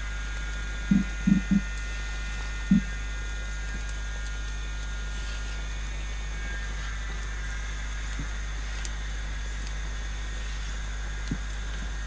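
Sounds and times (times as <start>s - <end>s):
steady low hum: 0.0s - 12.0s
short dull thumps: 0.9s - 1.6s.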